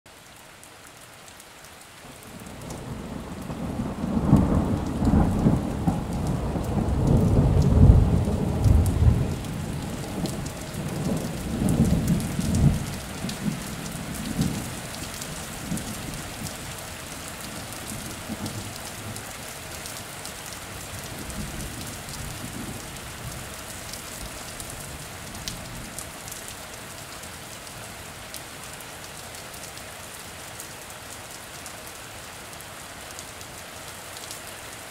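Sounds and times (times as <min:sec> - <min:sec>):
steady rain: 0:00.1 - 0:34.9
thunder rumble: 0:02.7 - 0:14.7.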